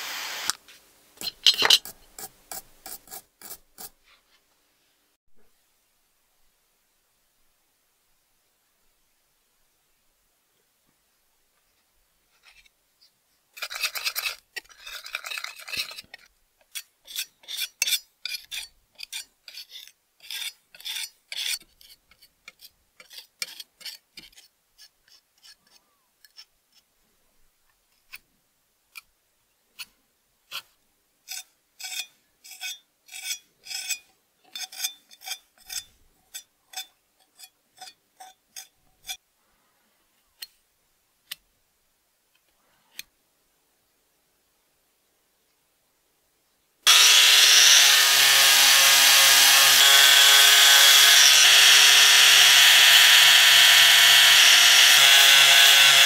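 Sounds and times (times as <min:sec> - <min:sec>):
metal spatula scraping putty: 0:01.2 - 0:04.0, 0:13.6 - 0:26.5, 0:31.3 - 0:39.2, 0:50.6 - 0:56.0.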